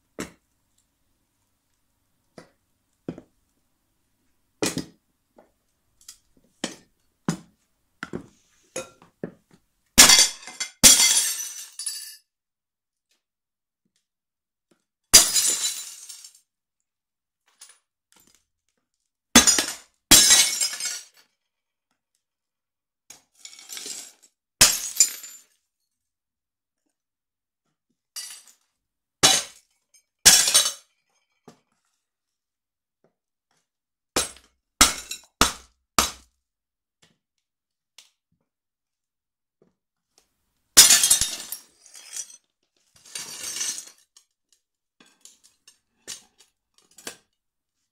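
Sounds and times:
ceramic plates shattering: 10.0s - 12.2s, 15.2s - 16.3s, 19.4s - 21.2s, 24.6s - 25.4s, 29.2s - 29.6s, 30.2s - 30.9s, 34.2s - 36.2s, 40.8s - 42.4s, 43.0s - 44.0s
shards clinking: 40.8s - 44.0s.

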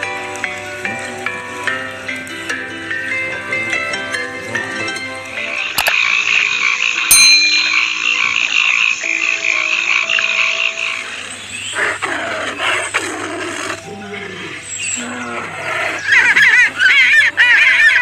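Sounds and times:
frog chorus trilling: 4.6s - 18.0s
deep frog croaks: 5.5s - 7.1s, 8.1s - 17.5s
tiger growling: 11.2s - 18.0s.

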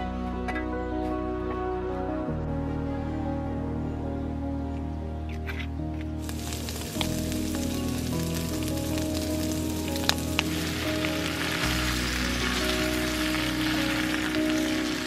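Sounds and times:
background music with held notes: 0.0s - 15.0s
food sizzling in a pan: 6.2s - 15.0s.

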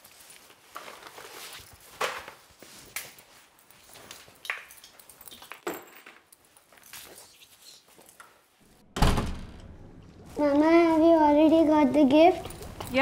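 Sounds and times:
light footsteps: 10.2s - 13.0s.

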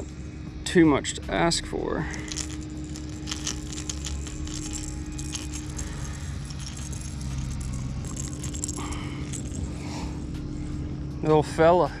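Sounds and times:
low steady hum: 0.0s - 12.0s
plastic lure and hooks rattling: 2.2s - 9.8s.

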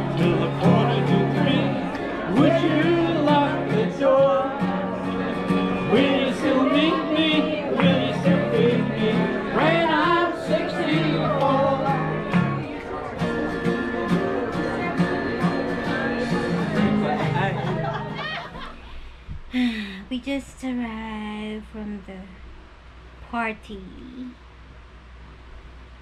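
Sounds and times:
person singing country song: 0.0s - 18.0s
acoustic guitar: 0.0s - 22.3s.

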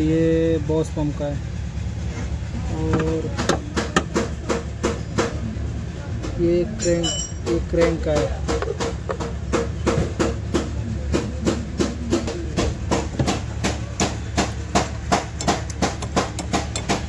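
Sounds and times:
car engine humming: 0.0s - 17.0s
rapid engine ticking: 0.0s - 17.0s.

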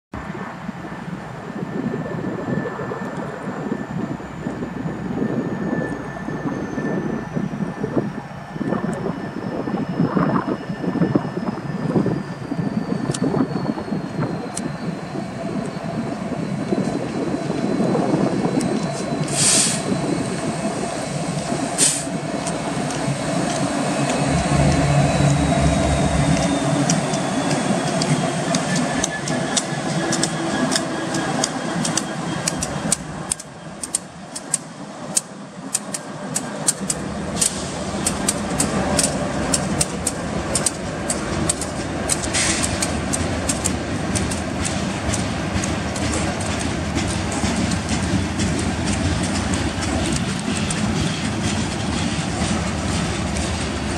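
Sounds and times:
diesel locomotives passing: 0.2s - 53.9s
wheels clicking over rail joints: 21.8s - 53.9s.

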